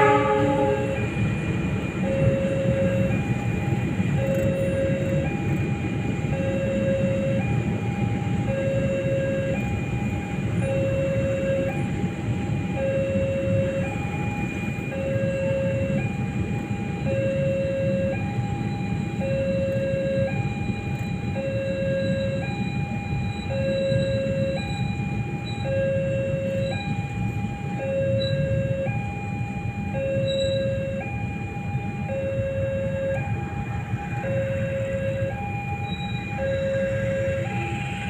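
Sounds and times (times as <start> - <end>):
freight train rumbling past: 0.0 - 15.3, 31.0 - 38.0
level crossing two-tone alarm: 0.0 - 38.0.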